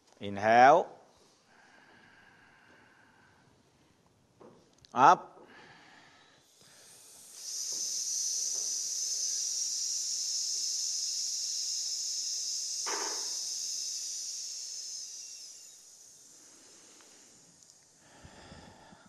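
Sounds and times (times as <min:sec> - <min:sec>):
hiss breathed through teeth: 0:05.7 - 0:19.0.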